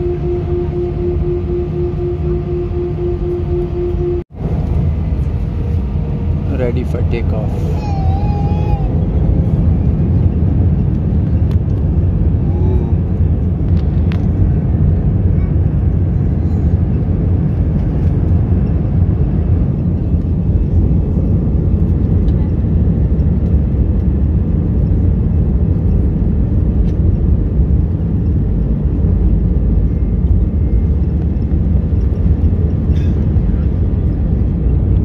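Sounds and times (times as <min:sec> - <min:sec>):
engines rumbling: 0:00.0 - 0:35.0.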